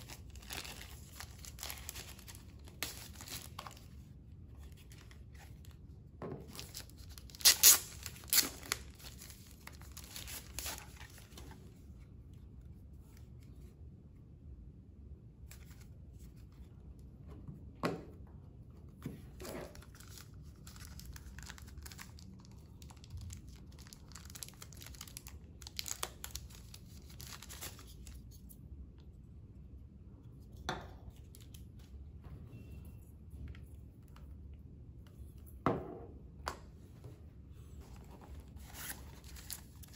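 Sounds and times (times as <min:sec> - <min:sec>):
plastic wrapping tearing and crinkling: 0:00.0 - 0:03.9, 0:06.5 - 0:11.3, 0:19.7 - 0:28.2.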